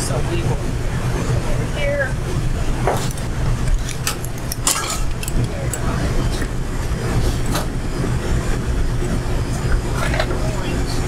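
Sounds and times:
low machine rumble: 0.0 - 11.0
utensils clicking on metal table: 3.7 - 5.8.

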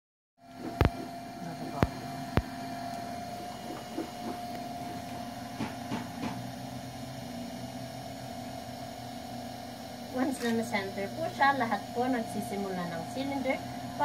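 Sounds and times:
potter's wheel motor humming: 0.4 - 14.0.

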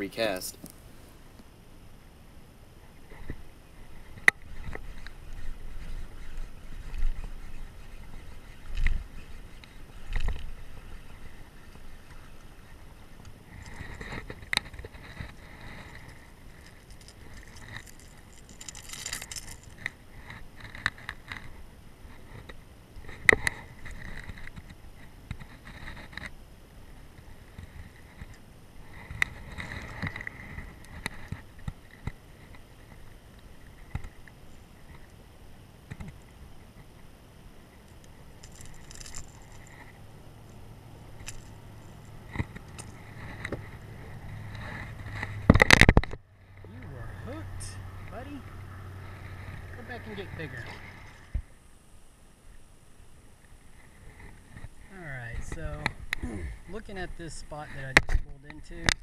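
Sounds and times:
short rattling bursts: 15.9 - 19.8.

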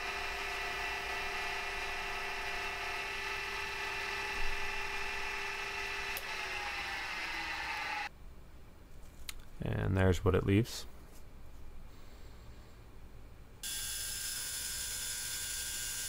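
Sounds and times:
milling machine whine: 0.0 - 8.1.

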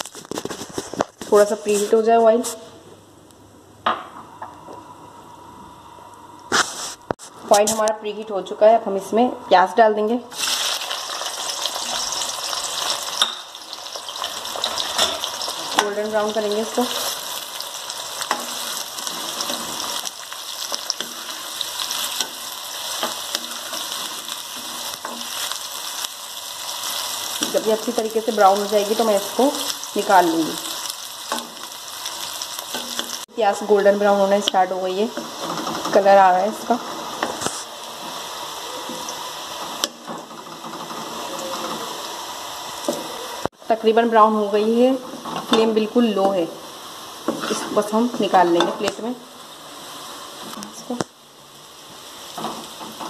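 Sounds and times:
onions sizzling in hot oil: 10.3 - 53.0
wooden spoon scraping a pan: 18.2 - 25.7, 47.2 - 48.9.

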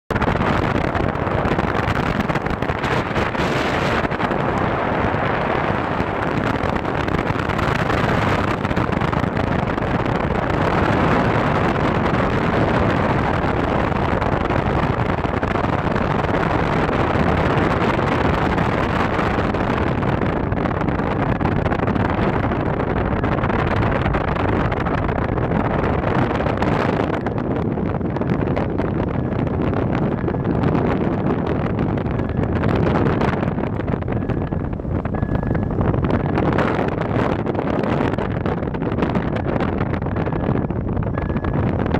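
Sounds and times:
wind on microphone: 0.1 - 41.9
car engine running: 21.2 - 41.9.

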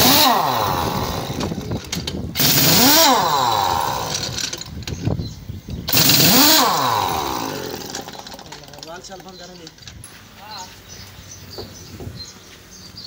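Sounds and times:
pneumatic impact wrench: 0.0 - 5.2, 5.8 - 8.9.

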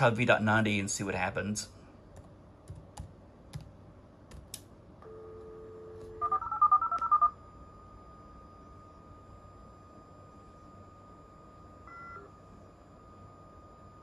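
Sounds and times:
dial tone: 5.0 - 7.4.

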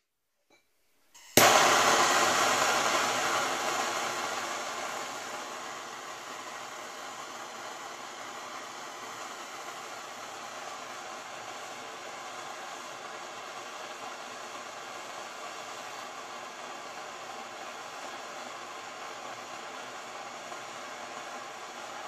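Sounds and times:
torch flame hissing: 1.2 - 22.0.

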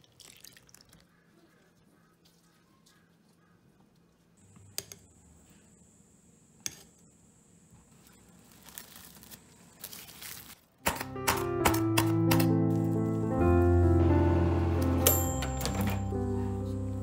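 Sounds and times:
cling wrap crinkling: 8.0 - 10.8.

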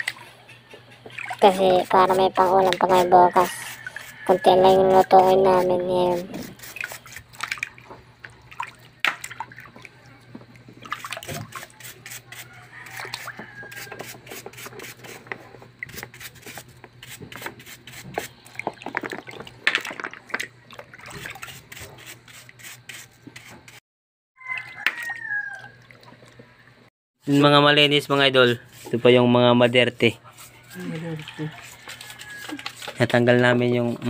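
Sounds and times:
water splashing and dripping: 0.0 - 0.3, 1.0 - 1.9, 6.6 - 11.8, 18.4 - 21.7, 24.4 - 26.4
brush scrubbing clams: 1.2 - 7.6, 10.8 - 19.5, 28.4 - 34.0.

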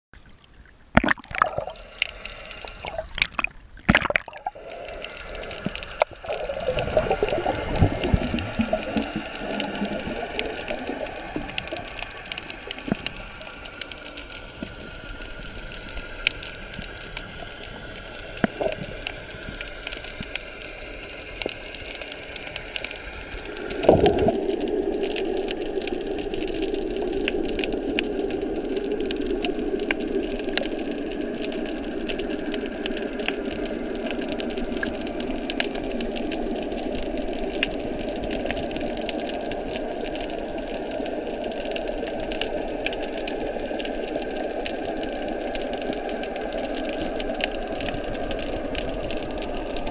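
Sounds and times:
sharp underwater clicks: 0.2 - 14.8
muffled water hush: 0.2 - 49.9.

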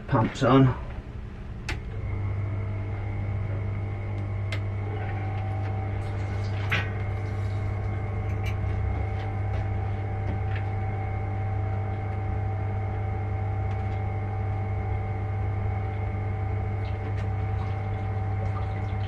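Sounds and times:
electric pumps humming: 0.0 - 19.0.

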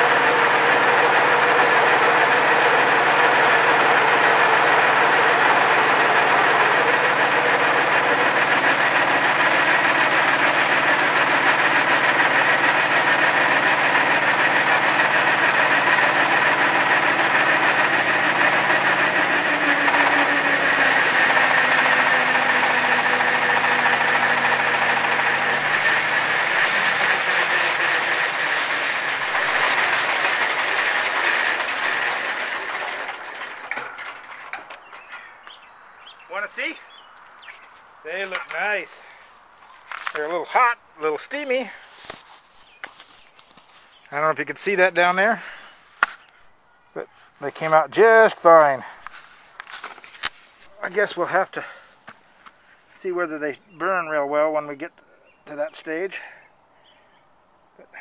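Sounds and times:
stationary engine running: 0.0 - 34.8.

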